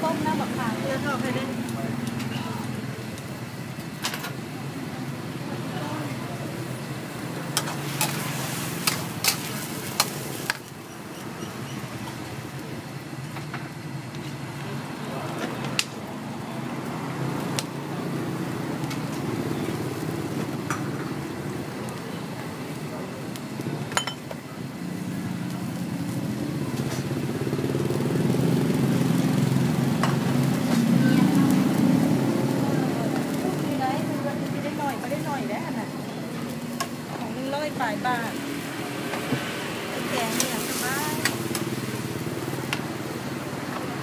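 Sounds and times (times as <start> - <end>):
small motorcycle engine running: 24.8 - 35.8.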